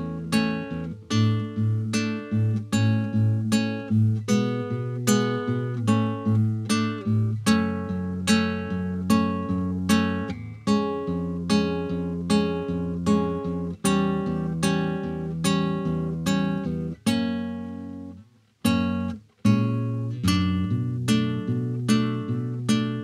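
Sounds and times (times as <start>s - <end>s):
classical guitar chords: 0.0s - 23.0s.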